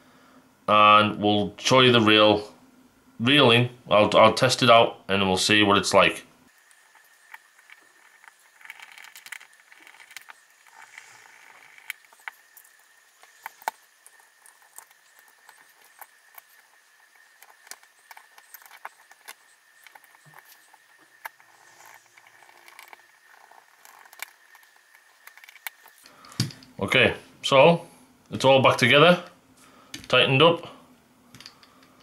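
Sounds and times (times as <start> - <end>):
faint high hum: 0.0 - 32.0.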